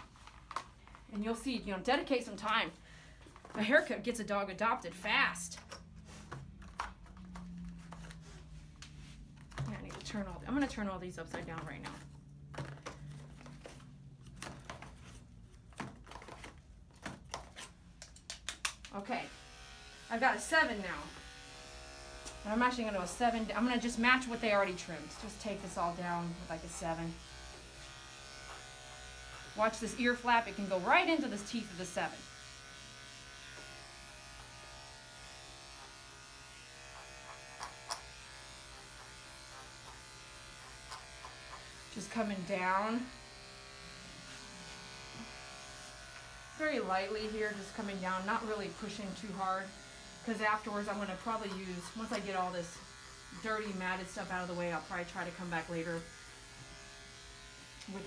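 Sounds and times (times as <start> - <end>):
electric clippers buzzing: 18.8 - 58.0.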